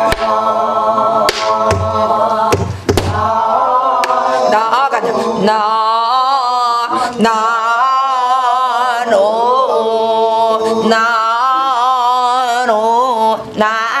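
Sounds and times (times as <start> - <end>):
woman singing long held notes: 4.0 - 14.0.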